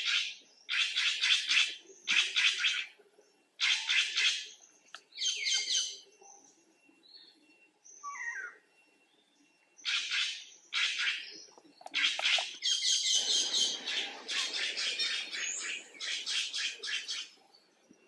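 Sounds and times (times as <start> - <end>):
low noise: 4.4 - 18.0
high chirping animal calls: 5.2 - 6.0, 7.9 - 8.6, 9.8 - 17.4.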